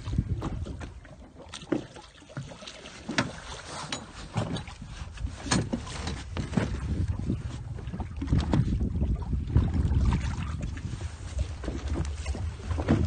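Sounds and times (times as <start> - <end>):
wind buffeting the microphone: 0.0 - 1.2, 4.2 - 13.0
splashes and knocks: 0.0 - 13.0
water lapping against a boat: 0.0 - 13.0.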